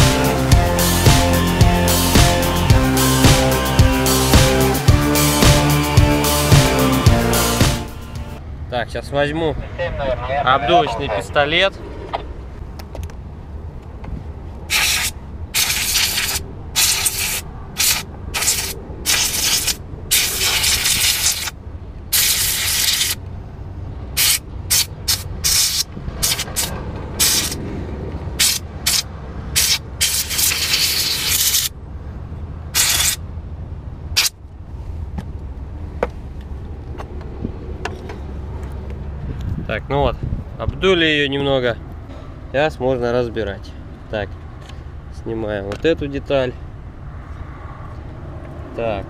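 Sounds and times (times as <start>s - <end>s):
steady low rumble: 0.0s - 8.6s
compressed air blow gun hissing: 14.7s - 21.5s, 22.1s - 23.2s, 24.2s - 27.6s, 28.4s - 31.7s, 32.8s - 33.2s.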